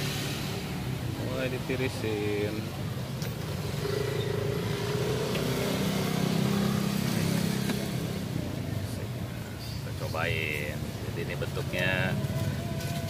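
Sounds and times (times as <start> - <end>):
vehicle engine passing: 0.0 - 9.0.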